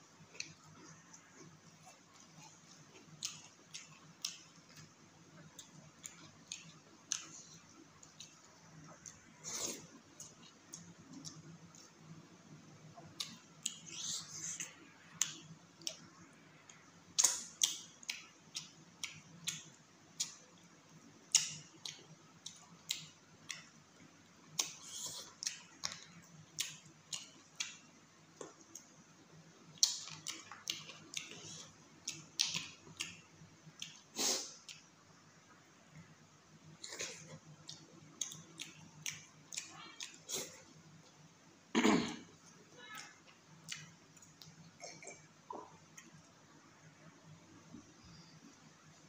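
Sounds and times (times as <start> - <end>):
chewing and mouth smacking: 0.3 - 12.0, 24.6 - 27.8, 29.8 - 33.2, 36.8 - 41.2, 42.4 - 46.3.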